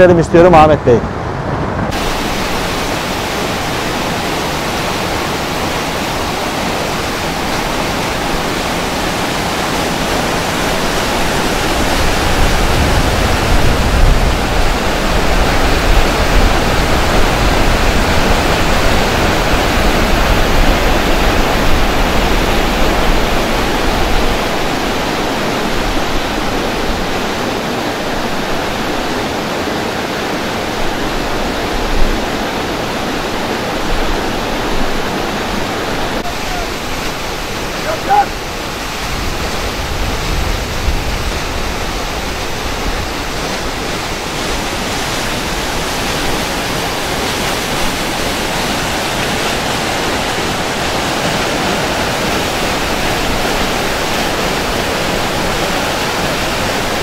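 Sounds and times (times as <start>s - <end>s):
waterfall and river rushing: 0.0s - 57.0s.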